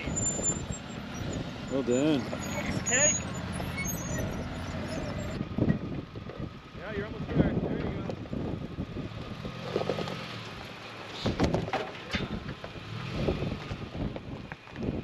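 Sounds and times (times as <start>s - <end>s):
engine and tyre noise: 0.0s - 15.0s
knocks and rattles: 11.2s - 12.8s.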